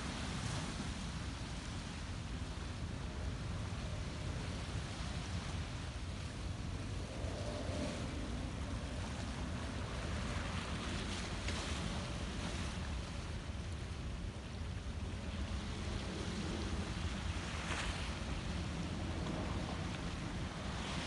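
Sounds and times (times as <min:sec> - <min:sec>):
wind rumble on microphone: 0:00.0 - 0:21.0.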